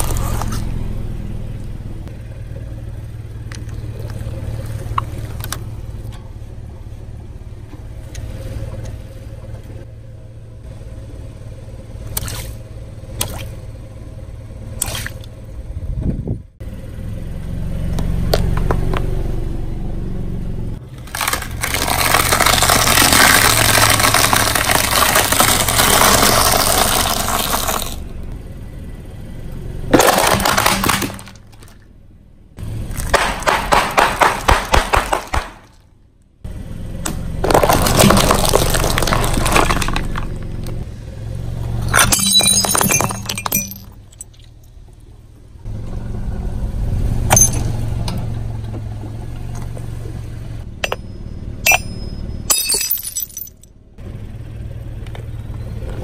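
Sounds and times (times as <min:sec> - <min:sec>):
car engine idling: 0:00.0 - 0:56.0
tyre crunching crackers: 0:20.9 - 0:28.0, 0:29.9 - 0:31.7, 0:32.9 - 0:35.8, 0:37.4 - 0:40.8
sharp crack of plastic crushed: 0:21.0 - 0:28.0, 0:29.9 - 0:31.8, 0:33.0 - 0:35.9, 0:37.4 - 0:40.4.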